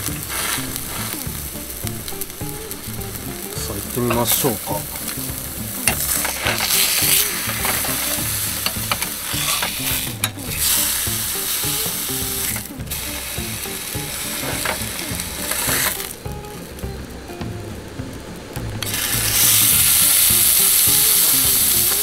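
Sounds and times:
steak sizzling on a griddle: 0.0s - 17.4s, 18.8s - 22.0s.

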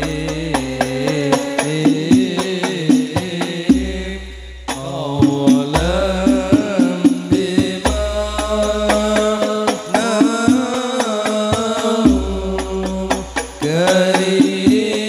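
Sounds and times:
frame drums in steady rhythm: 0.0s - 15.0s
man singing a chant: 0.0s - 15.0s
low sustained bass: 3.8s - 5.1s.

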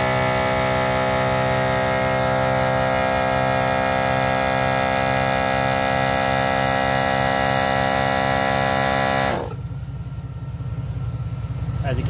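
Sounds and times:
air compressor running: 0.0s - 9.7s
low engine-like idle: 8.8s - 12.0s.

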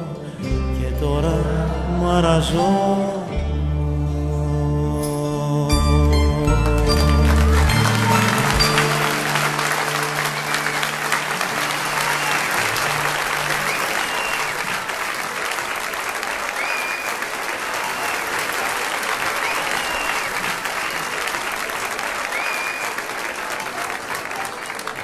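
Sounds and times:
band playing last notes: 5.7s - 15.7s
audience applauding: 6.4s - 25.0s
whistles: 11.6s - 15.6s, 16.4s - 21.3s, 22.1s - 23.2s.

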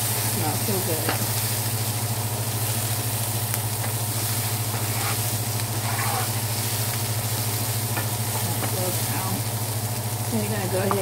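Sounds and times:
onions sizzling in oil: 0.0s - 11.0s
steady low hum: 0.0s - 11.0s.

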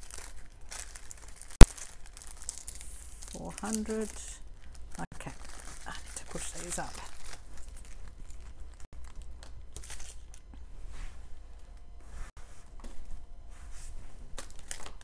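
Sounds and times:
plastic bags crinkling: 0.0s - 10.5s, 14.4s - 15.0s.

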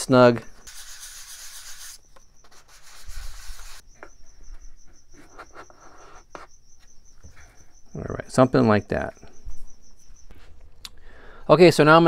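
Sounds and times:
sanding block rubbing on plywood: 0.7s - 3.8s.

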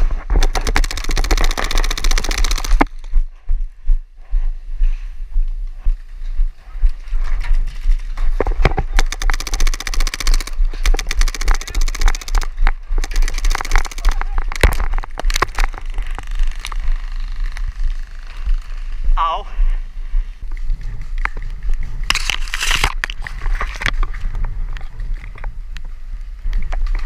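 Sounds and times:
wind rumbling on microphone: 0.0s - 27.0s
paintball markers firing: 0.3s - 3.0s, 8.6s - 16.8s.

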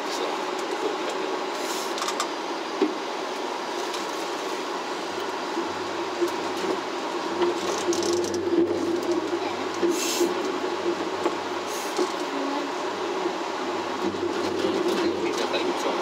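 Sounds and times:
cable car running rumble: 0.0s - 16.0s.

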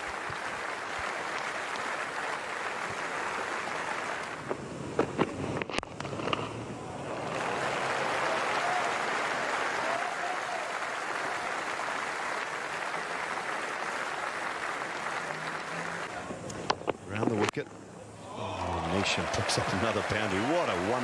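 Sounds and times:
crowd applauding: 0.0s - 4.4s, 6.9s - 16.3s, 18.3s - 21.0s.

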